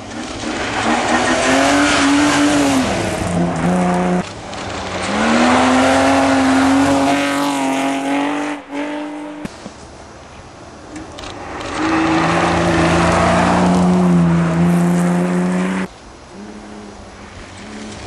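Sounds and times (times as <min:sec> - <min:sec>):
rally car engine revving: 0:00.0 - 0:09.5, 0:11.4 - 0:18.0.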